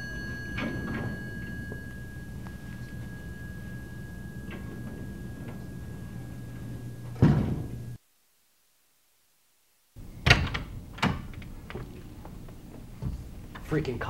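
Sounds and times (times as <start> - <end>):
door clicks and knocks: 4.5 - 7.9, 10.2 - 12.0
door thud: 4.5 - 8.0.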